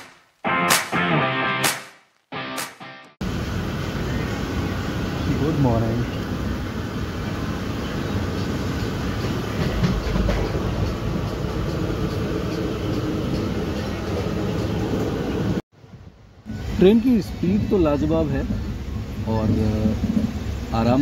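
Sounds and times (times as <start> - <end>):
train wheels rumbling on rails: 4.4 - 15.6, 16.5 - 21.0
train wheel clacks: 8.4 - 14.8.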